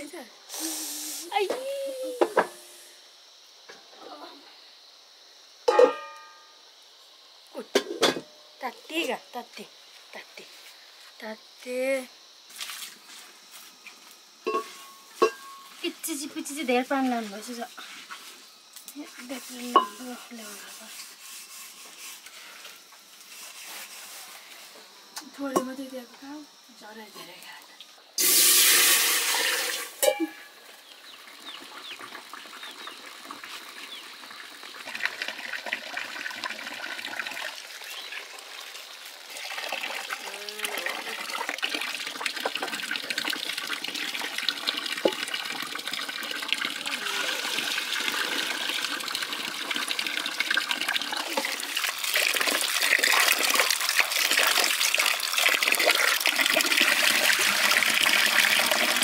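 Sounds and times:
water trickling and splashing: 0:12.5 - 0:13.2, 0:28.2 - 0:59.0.

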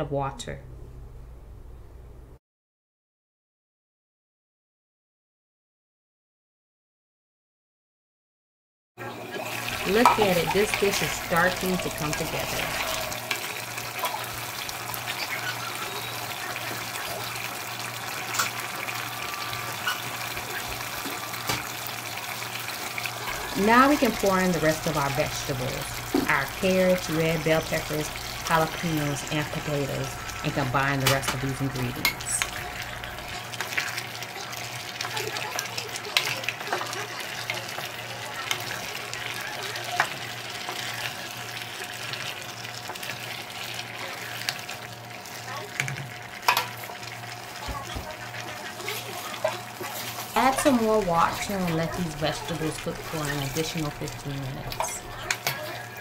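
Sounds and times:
low steady hum: 0:00.0 - 0:02.4, 0:23.3 - 0:33.5
pot simmering with pops: 0:09.3 - 0:56.0.

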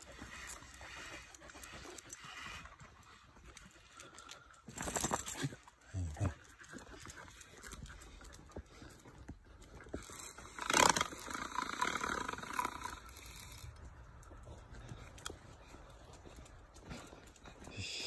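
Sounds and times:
footsteps on stone paving: 0:06.2 - 0:10.6, 0:13.0 - 0:18.0.

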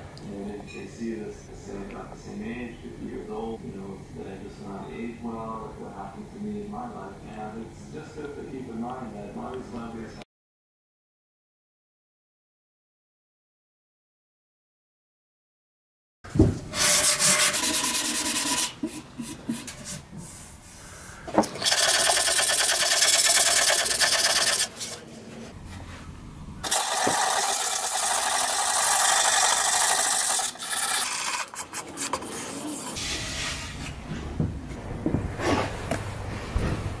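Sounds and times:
sandpaper rubbing on wood: 0:16.7 - 0:20.7, 0:21.7 - 0:25.1, 0:31.1 - 0:33.2.

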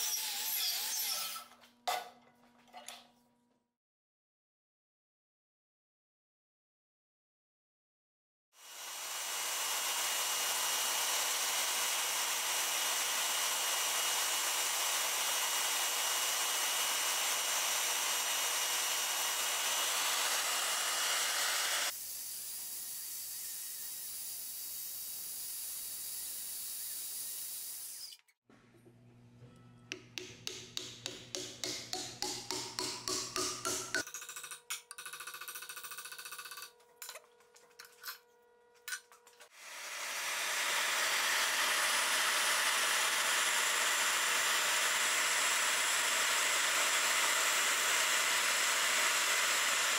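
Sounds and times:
hammer tapping wooden wedge: 0:29.9 - 0:34.1.

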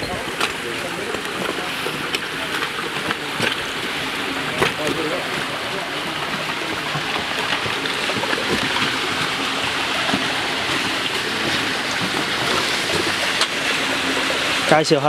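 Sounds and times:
meltwater rushing through ice: 0:00.0 - 0:15.0.

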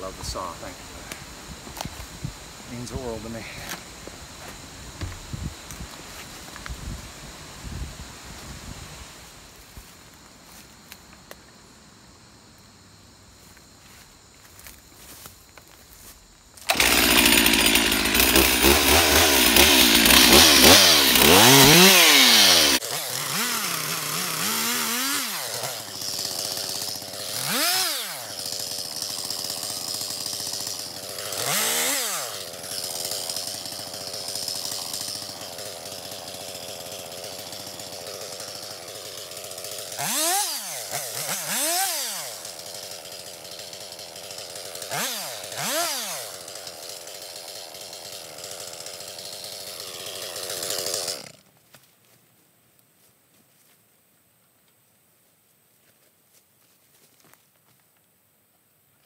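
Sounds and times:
chainsaw running at high revs: 0:16.6 - 0:51.4
chainsaw throttle blips: 0:16.6 - 0:51.4.

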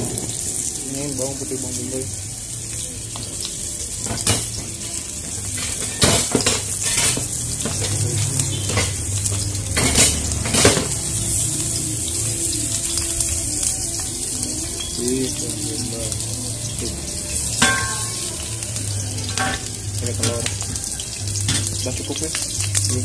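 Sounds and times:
metal utensils and pans clattering: 0:04.0 - 0:11.0, 0:17.5 - 0:18.6, 0:19.2 - 0:22.6.

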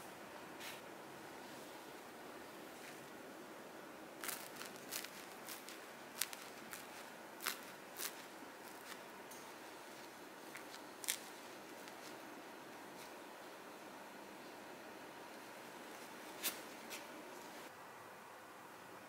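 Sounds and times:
bread crust crackling: 0:04.2 - 0:13.2.

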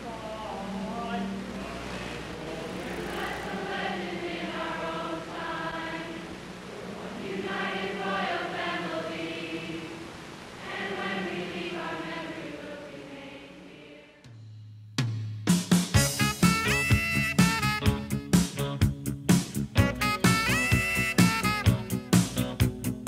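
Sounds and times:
crowd singing in unison: 0:00.0 - 0:14.3.

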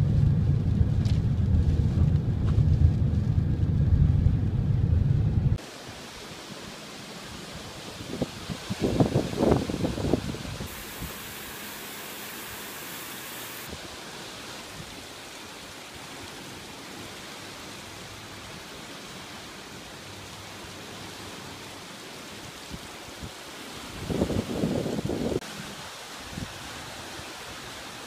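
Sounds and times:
rain falling: 0:00.0 - 0:24.2
creek rushing in flood: 0:05.6 - 0:28.0
wind buffeting microphone: 0:07.9 - 0:11.2, 0:24.0 - 0:25.4.

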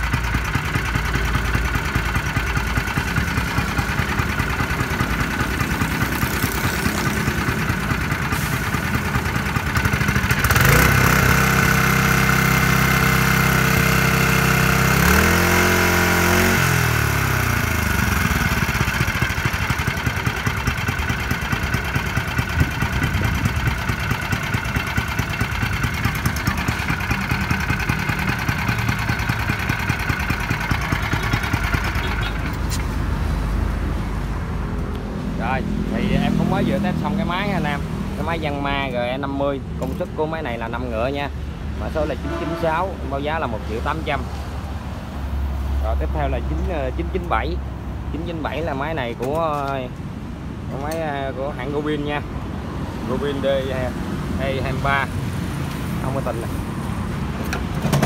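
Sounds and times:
single-cylinder petrol engine idling: 0:00.0 - 0:44.9
engine revving up: 0:10.4 - 0:18.6.

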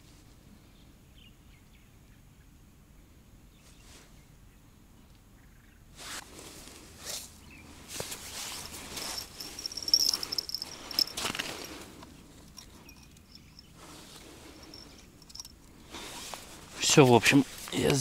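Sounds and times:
jacket sleeves rustling: 0:07.9 - 0:18.0.

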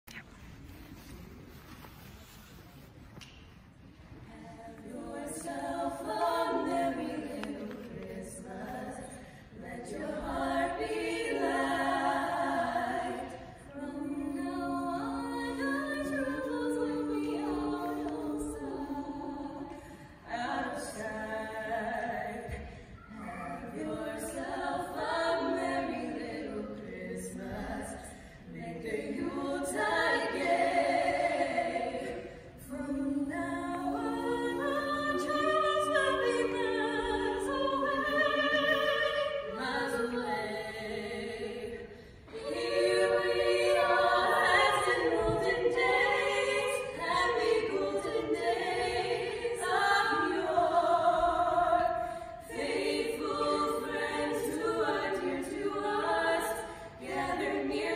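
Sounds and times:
women singing a cappella: 0:04.0 - 0:57.9.

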